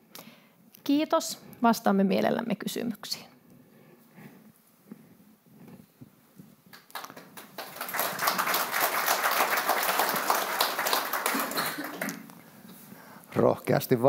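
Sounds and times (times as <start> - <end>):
audience applauding: 6.8 - 12.4.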